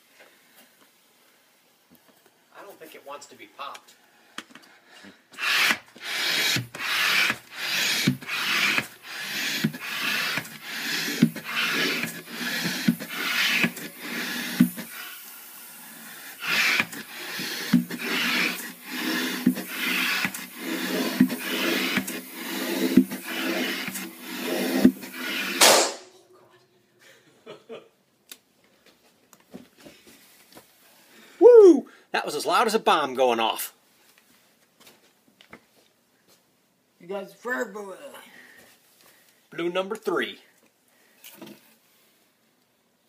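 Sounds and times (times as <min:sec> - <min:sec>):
hand air pump strokes: 0:05.3 - 0:25.9.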